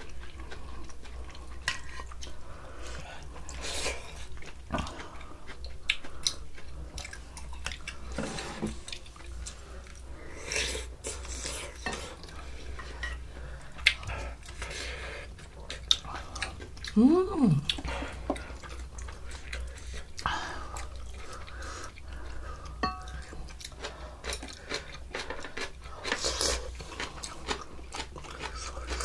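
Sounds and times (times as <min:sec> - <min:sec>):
person humming: 0:16.9 - 0:17.8
cutlery clinking on dishes: 0:22.8 - 0:23.2.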